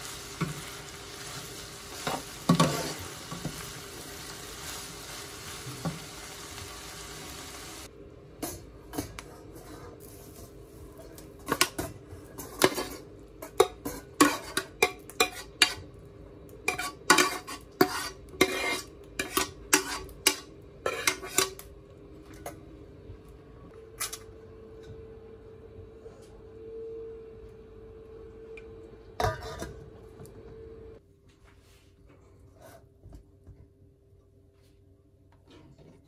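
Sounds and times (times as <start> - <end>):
faint steady hum: 0.0 - 36.0
pan and spatula clanking on colander: 11.4 - 15.9, 16.7 - 21.6.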